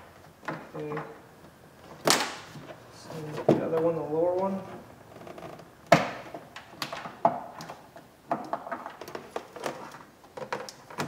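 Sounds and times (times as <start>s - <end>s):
plastic clicks and knocks: 5.9s - 11.0s.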